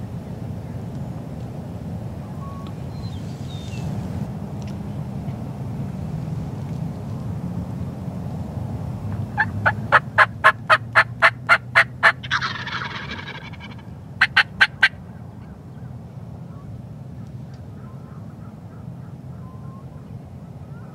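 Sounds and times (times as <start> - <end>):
turkey gobbling: 9.3 - 15.0
turkey yelps: 9.3 - 15.0.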